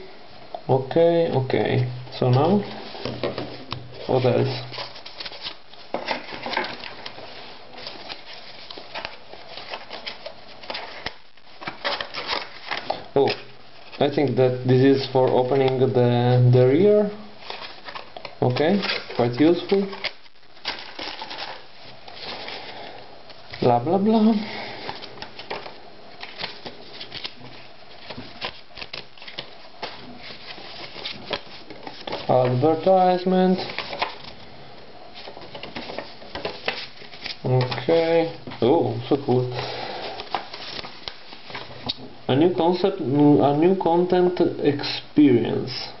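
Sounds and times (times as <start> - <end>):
paper rustling: 2.2 - 34.5, 35.1 - 42.0
cardboard scraping and rustling: 24.2 - 34.4, 35.1 - 38.6.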